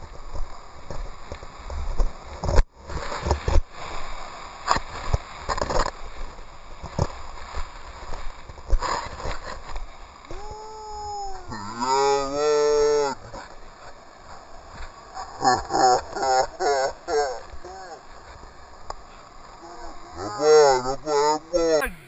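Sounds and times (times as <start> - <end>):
long falling pitched call: 21.8 - 22.0.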